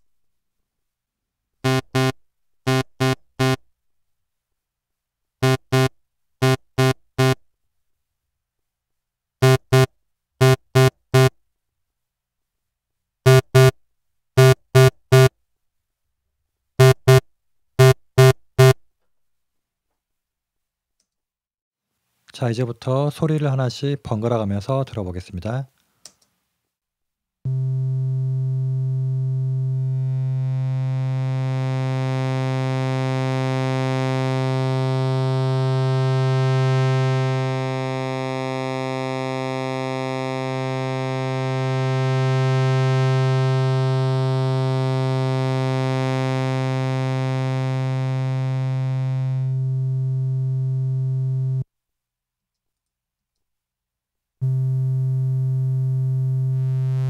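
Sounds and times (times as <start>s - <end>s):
held low synth note: 39.4s - 51.6s.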